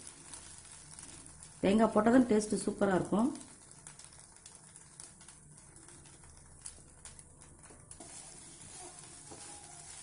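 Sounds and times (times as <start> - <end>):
food sizzling in a pan: 0.0 - 6.9, 7.9 - 10.0
spatula scraping a pan: 8.0 - 10.0.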